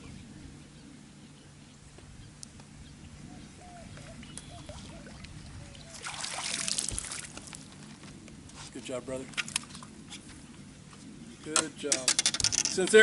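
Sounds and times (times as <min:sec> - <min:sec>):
bird chirps: 0:00.0 - 0:06.0
fish splashing at surface: 0:05.9 - 0:07.6.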